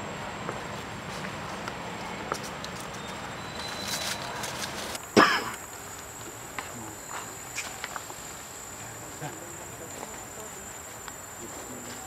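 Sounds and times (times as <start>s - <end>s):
high insect whine: 2.9s - 12.0s.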